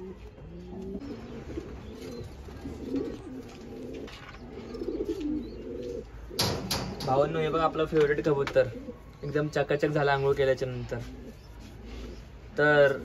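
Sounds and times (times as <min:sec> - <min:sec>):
pigeons cooing: 0:00.0 - 0:13.0.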